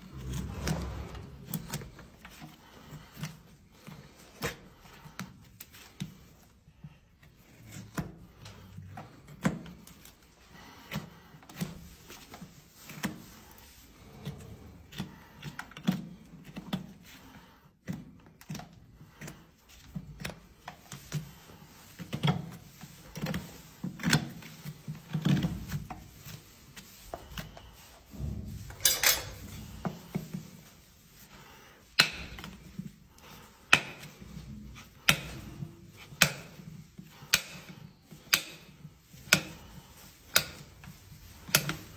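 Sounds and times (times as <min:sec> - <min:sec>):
hoof trimming clicks and snaps: 0:40.3 - 0:40.7.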